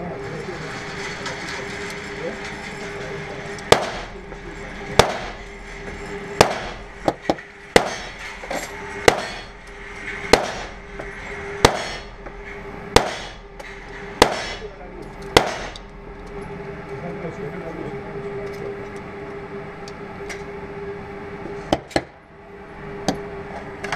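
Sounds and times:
steady hum: 0.0 - 23.9
pistol shots echoing indoors: 15.4 - 15.8.

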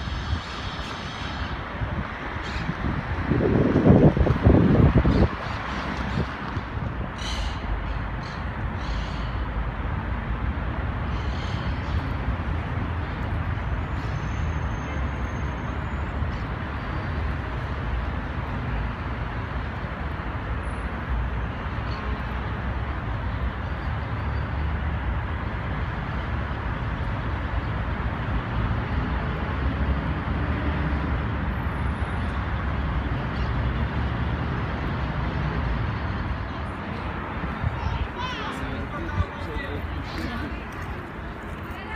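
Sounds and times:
wind buffeting microphone: 0.0 - 7.2
road traffic rumble: 0.0 - 41.9.

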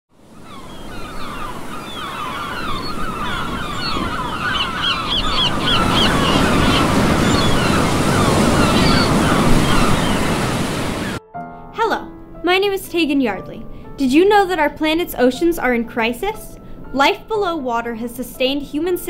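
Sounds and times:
gulls calling: 0.2 - 11.2
surf breaking on shore: 0.2 - 11.2.

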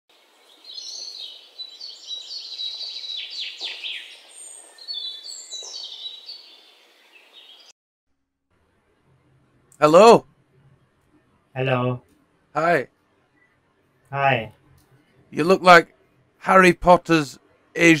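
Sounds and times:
birds chirping and singing: 0.2 - 7.7.

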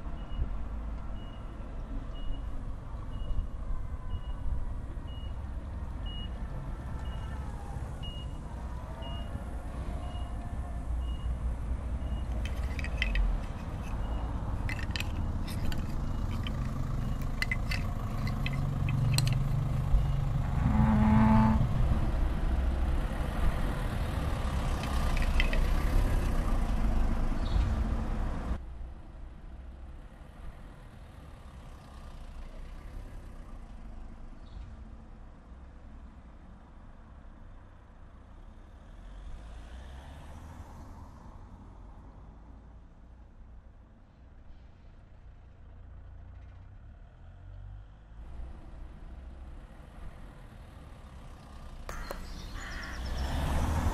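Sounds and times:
quiet outdoor background: 0.0 - 53.9
vehicle engine running: 12.2 - 22.2
clicks and knocks: 12.3 - 19.5, 24.8 - 26.1.

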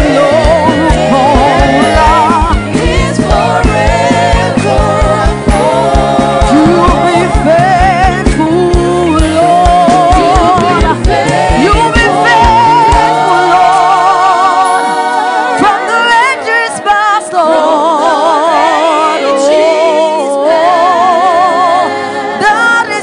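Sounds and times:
steady low beat: 0.0 - 13.9
voices singing gospel: 0.0 - 23.0.

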